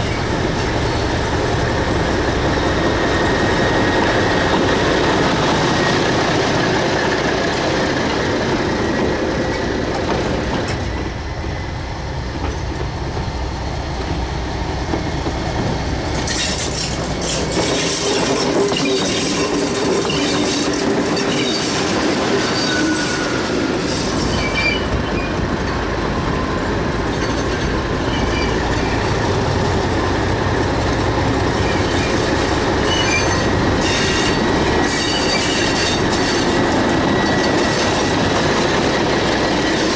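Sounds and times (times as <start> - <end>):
diesel locomotive engine running: 0.0 - 39.9
train wheels squealing: 2.5 - 11.8, 16.2 - 25.5, 26.2 - 30.4, 31.2 - 39.9.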